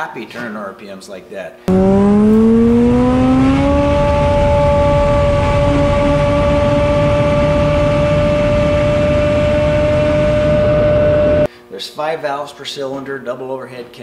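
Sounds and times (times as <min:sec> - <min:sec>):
engine running at high pitch: 0:01.7 - 0:11.5
propeller and air rush: 0:01.7 - 0:11.5.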